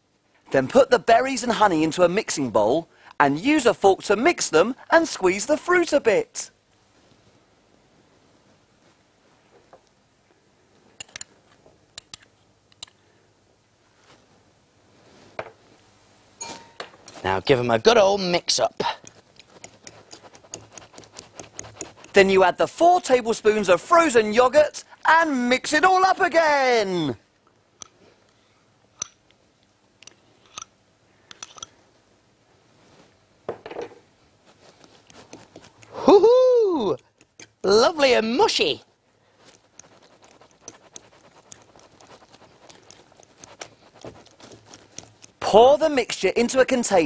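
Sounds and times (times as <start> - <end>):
spoon clinking on glass bowl: 16.4 - 16.9.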